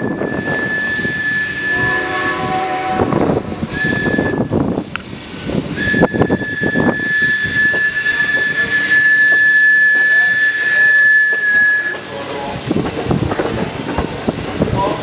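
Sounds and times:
high wheel squeal: 0.0 - 2.4, 3.6 - 4.6, 5.7 - 12.1
steam locomotive whistle: 0.0 - 4.6, 5.7 - 12.1
train wheels clattering: 5.7 - 15.0.

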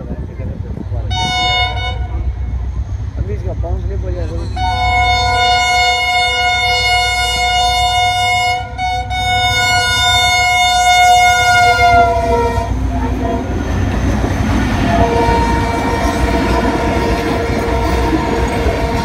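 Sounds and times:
low engine rumble: 0.0 - 19.0
rushing rumble of train coaches: 0.0 - 19.0
locomotive horn blast: 1.1 - 2.5, 4.5 - 13.5, 14.8 - 19.0.

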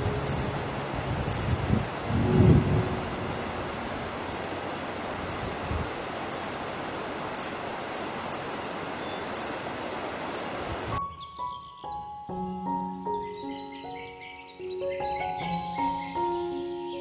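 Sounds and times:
high-pitched chirping: 0.0 - 6.5
steady forest hiss: 0.0 - 17.0.

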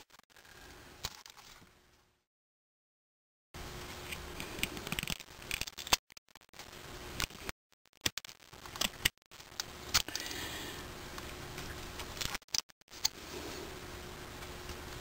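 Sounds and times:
faint steady hum: 3.6 - 15.0.

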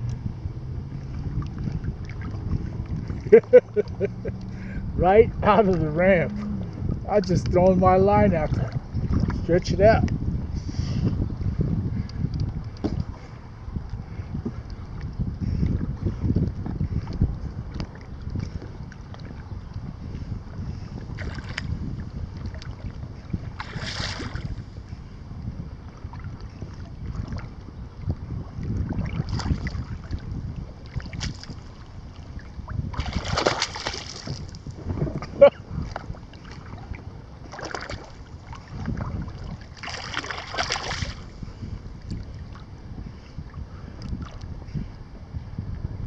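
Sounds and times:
wind rumbling on microphone: 0.0 - 46.0
small waves lapping: 0.9 - 7.2, 20.8 - 21.8, 22.4 - 25.2, 25.9 - 42.7
water splashing: 0.9 - 10.0, 22.4 - 24.6, 28.9 - 30.2, 30.8 - 41.3.

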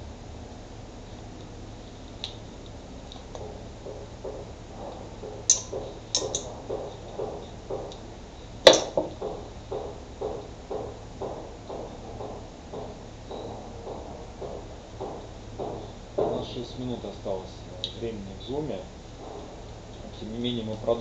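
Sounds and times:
soft knocks: 3.4 - 17.3.

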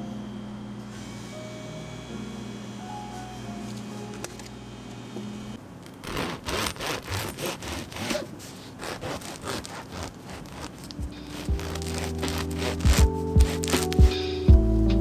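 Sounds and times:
soft music: 0.0 - 5.6, 9.9 - 15.0
bread knife sawing crusty loaf: 6.0 - 14.2.

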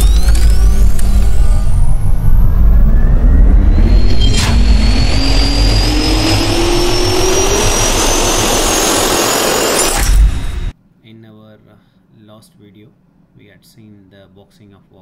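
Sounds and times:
jet engine spooling up: 0.0 - 10.7
sharp hit: 0.0 - 10.7.

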